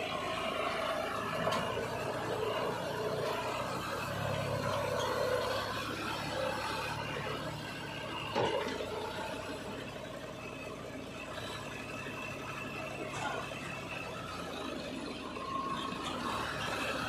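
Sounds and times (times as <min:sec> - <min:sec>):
backhoe loader diesel engine: 0:00.0 - 0:17.0
tractor diesel engine under load: 0:00.0 - 0:17.0
clunk: 0:08.2 - 0:08.9.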